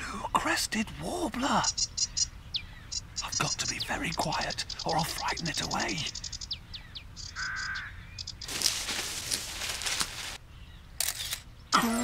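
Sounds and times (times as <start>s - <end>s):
harsh bird call: 1.4s - 8.5s
rustling: 8.4s - 10.4s.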